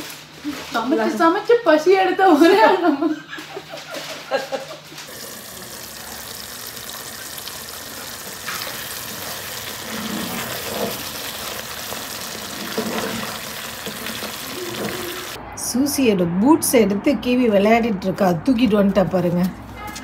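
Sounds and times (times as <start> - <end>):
curry simmering in a pot: 5.1 - 15.4.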